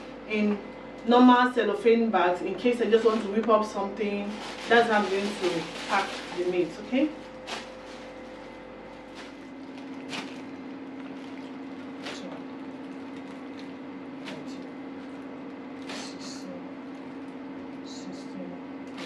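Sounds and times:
steady low hum: 0.0 - 19.0
plastic bag crinkling: 4.1 - 16.2, 16.8 - 17.9.

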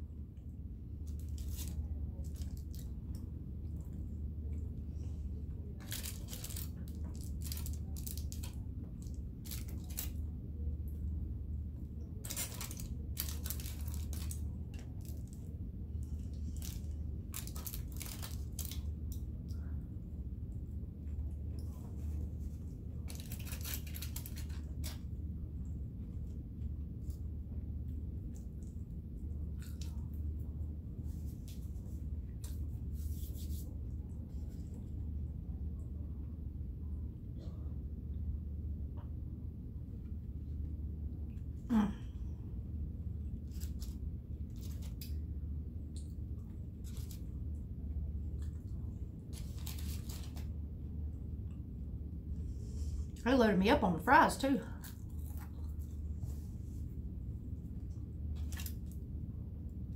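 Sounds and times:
steady low hum: 0.0 - 59.9
food packaging crinkling: 1.1 - 2.9, 5.8 - 8.6, 9.4 - 10.2, 12.2 - 19.0, 23.1 - 25.0, 43.5 - 45.2, 46.6 - 47.3, 49.3 - 50.5, 58.3 - 59.0.

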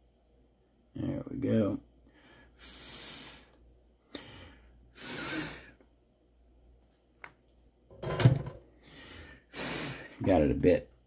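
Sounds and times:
man exhaling breathily: 4.1 - 5.8.

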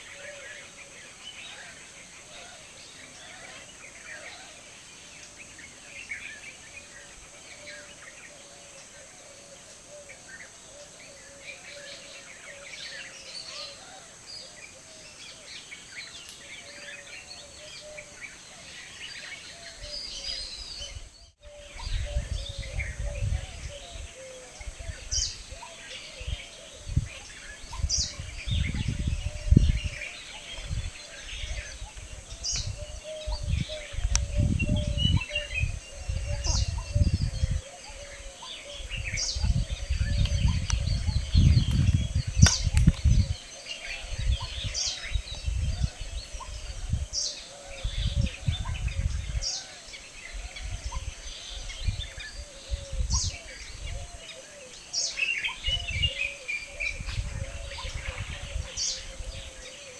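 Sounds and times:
birds calling: 0.0 - 59.9
wind rumble on microphone: 19.7 - 54.6, 55.5 - 59.9.

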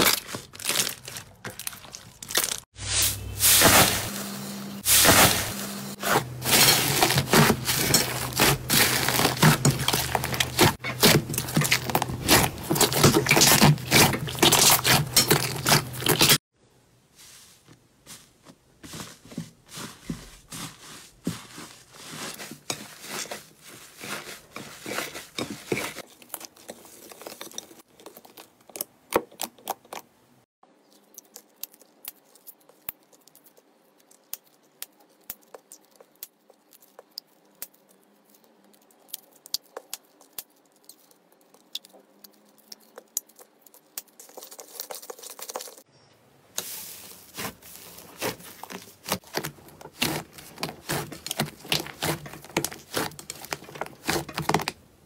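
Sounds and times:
plastic bags crinkling: 0.0 - 2.7, 3.4 - 16.4, 46.7 - 54.8
hands squishing slime: 6.0 - 16.4, 46.6 - 54.7.

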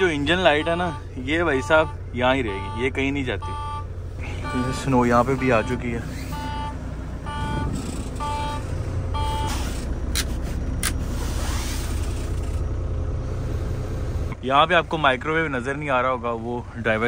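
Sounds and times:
diesel engine idling: 0.0 - 17.0
low air pressure warning beeps: 2.6 - 9.6.

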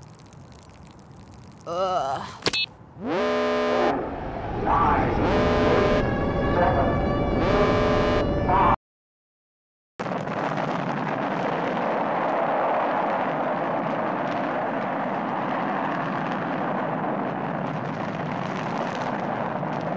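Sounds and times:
steady rushing ambience: 3.9 - 5.4.

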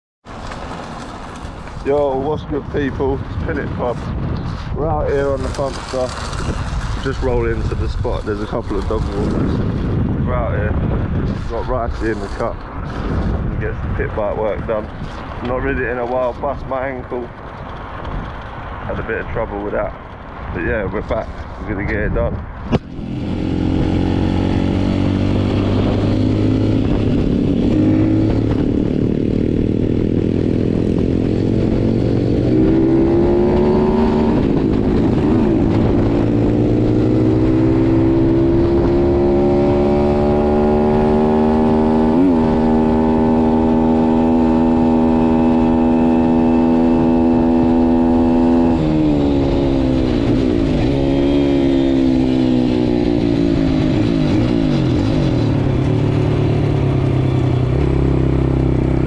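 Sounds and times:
motorbike engine revving: 21.9 - 59.0.

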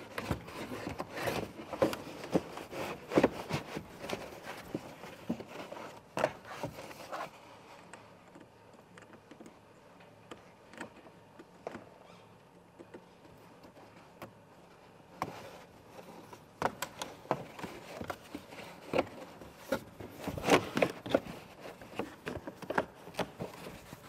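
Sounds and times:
plastic trim scraping and rattling: 15.2 - 24.0.

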